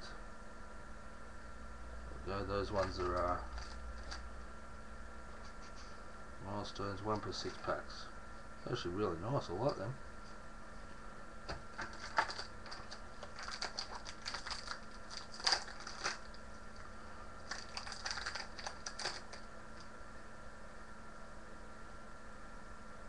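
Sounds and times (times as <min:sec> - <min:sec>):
faint steady hum: 0:00.0 - 0:23.0
paper and foil crinkling: 0:02.8 - 0:04.2, 0:11.8 - 0:16.4, 0:17.4 - 0:19.5.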